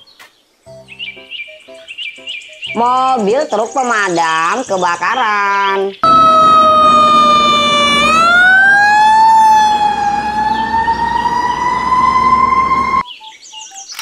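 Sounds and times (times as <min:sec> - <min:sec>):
fire truck siren wailing: 0:06.0 - 0:13.0
low street and engine noise: 0:06.0 - 0:13.0.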